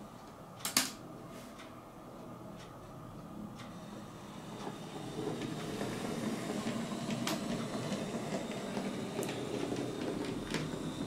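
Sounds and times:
model train motor whirring: 0:03.7 - 0:11.0
wheels clicking over rail joints: 0:04.6 - 0:11.0.

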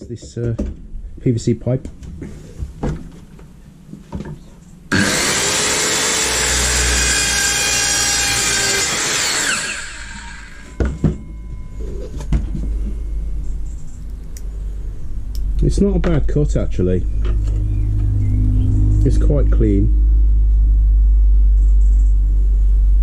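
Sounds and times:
circular saw cutting plastic pipe: 0:04.9 - 0:10.8.

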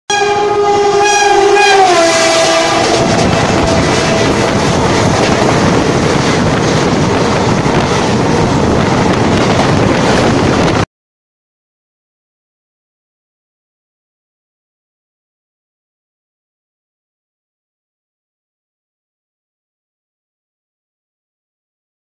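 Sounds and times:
locomotive horn blowing: 0:00.1 - 0:05.2
train wheels rumbling on rails: 0:00.1 - 0:10.9.

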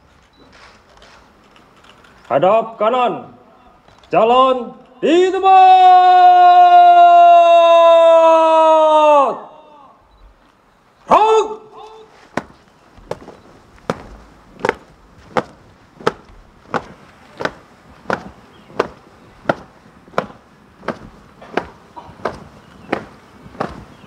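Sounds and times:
marching feet stamping: 0:11.8 - 0:24.0.

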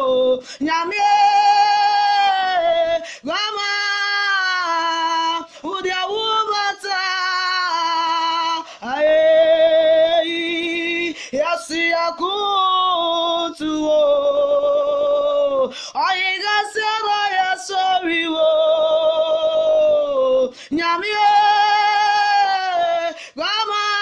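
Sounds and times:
woman singing unaccompanied: 0:00.0 - 0:24.0.

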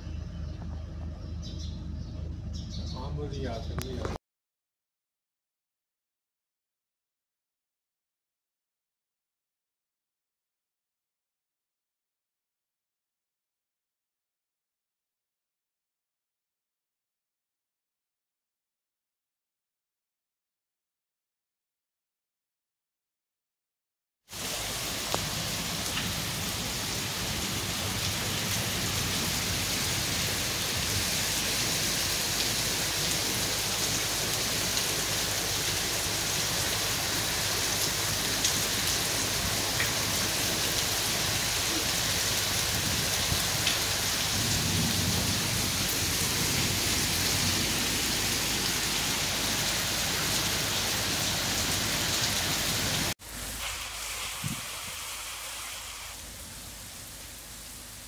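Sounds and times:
heavy rain on leaves: 0:24.3 - 0:58.0.

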